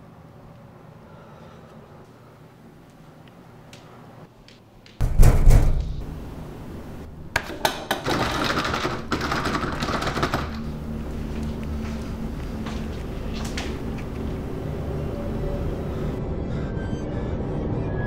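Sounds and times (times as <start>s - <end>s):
steady low drone: 10.6s - 17.9s.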